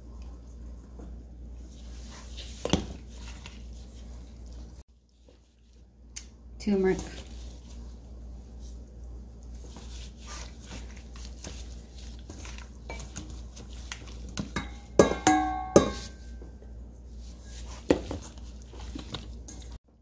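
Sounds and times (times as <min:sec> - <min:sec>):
gloved hands rubbing chicken: 0:01.4 - 0:06.0, 0:06.7 - 0:14.4, 0:16.9 - 0:19.8
knocks on ringing metal bowl: 0:14.6 - 0:16.1.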